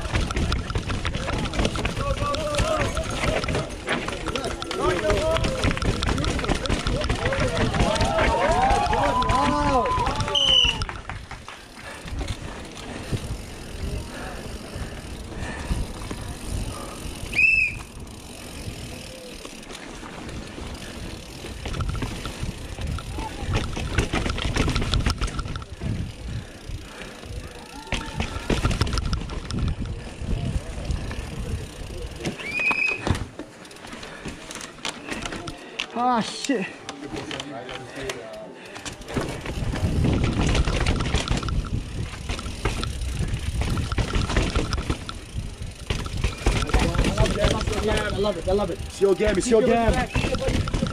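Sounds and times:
chain and frame rattle: 0.0 - 11.2, 20.8 - 27.0, 27.8 - 30.1, 38.8 - 50.9
bike tyre rumble: 0.0 - 35.8, 38.6 - 50.9
wind on microphone: 28.0 - 31.7
sharp clatter: 39.2 - 45.2, 49.6 - 50.9.

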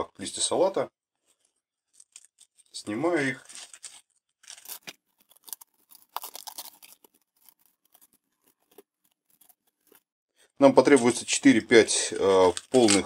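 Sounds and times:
lettuce leaves tearing: 3.4 - 10.0, 12.0 - 13.0.

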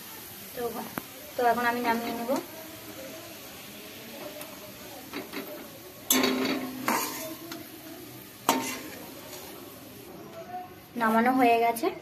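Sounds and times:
oil sizzling: 0.0 - 11.8
metal utensil scraping a pan: 5.0 - 7.7, 8.4 - 9.9.

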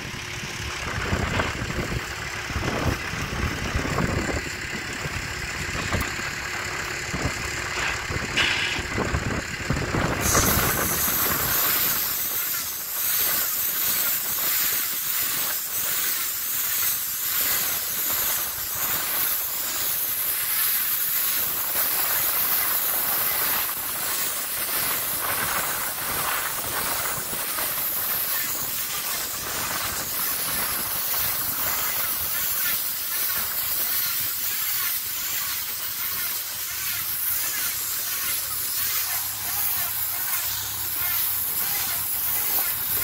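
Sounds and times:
bale wrapper hissing: 10.1 - 43.0.

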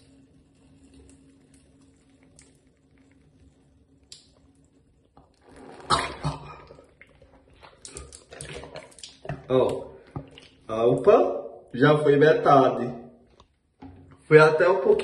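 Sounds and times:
faint drips: 0.0 - 11.8
burst of breath and water: 5.5 - 9.0.

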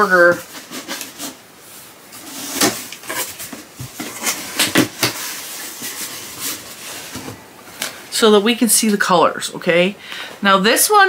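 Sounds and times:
rummaging in cardboard box: 0.0 - 8.0.

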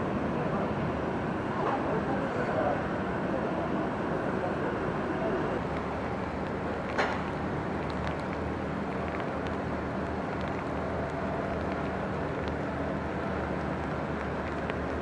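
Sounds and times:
faint raindrop ticks: 5.6 - 15.0.

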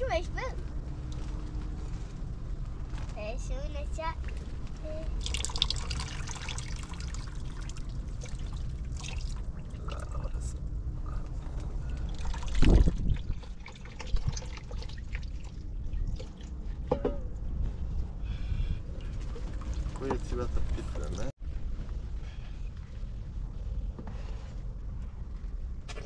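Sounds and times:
water trickling and pouring: 5.1 - 10.4, 11.9 - 16.8, 19.0 - 21.3.

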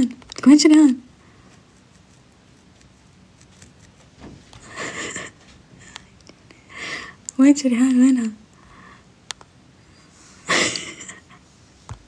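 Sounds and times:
woman's breathy laugh: 4.6 - 5.4, 10.4 - 11.4.

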